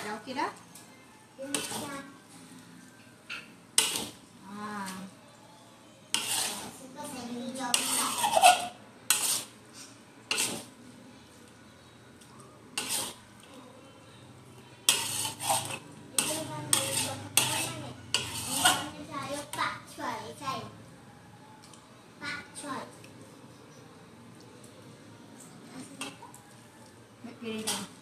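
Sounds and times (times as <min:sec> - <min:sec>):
metal spatula scraping a wok: 0:01.5 - 0:02.0, 0:03.8 - 0:04.2, 0:06.1 - 0:10.7, 0:12.8 - 0:13.2, 0:14.8 - 0:19.6, 0:27.6 - 0:28.0.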